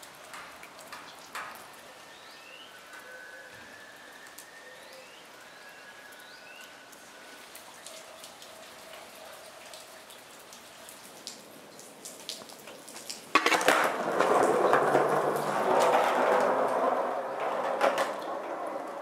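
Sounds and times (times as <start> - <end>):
skateboard wheels rolling on wet pavement: 0.0 - 3.0, 9.8 - 19.0
light rain: 0.0 - 19.0
drips: 4.1 - 13.4
skateboard landing clack: 13.3 - 19.0.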